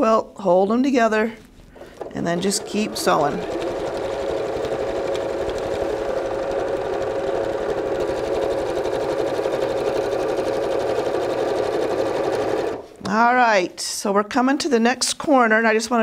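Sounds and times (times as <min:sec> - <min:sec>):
electric sewing machine running: 0:01.8 - 0:13.0.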